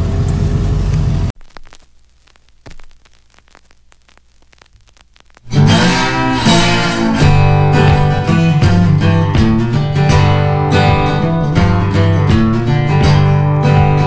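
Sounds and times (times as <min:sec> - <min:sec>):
strummed acoustic guitar music: 0:05.5 - 0:14.0.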